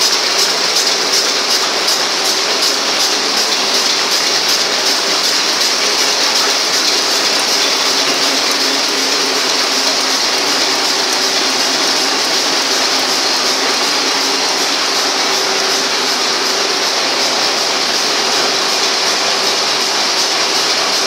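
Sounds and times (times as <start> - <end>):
rapid machine clatter: 0.0 - 21.0.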